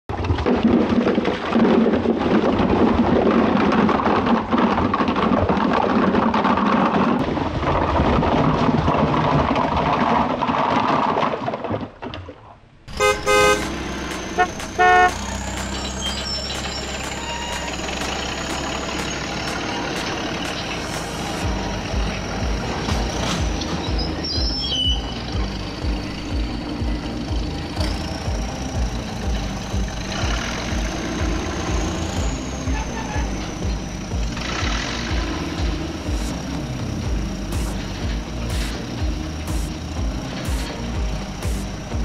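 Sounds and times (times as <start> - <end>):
electronic horn toots: 12.9 - 22.0.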